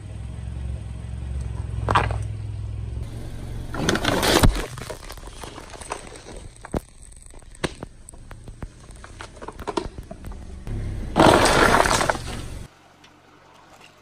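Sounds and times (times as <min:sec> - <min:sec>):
low engine rumble: 0:00.0 - 0:13.5
tyre crushing plastic bottles: 0:03.7 - 0:10.5, 0:11.2 - 0:12.6
bottles popping: 0:11.2 - 0:12.6.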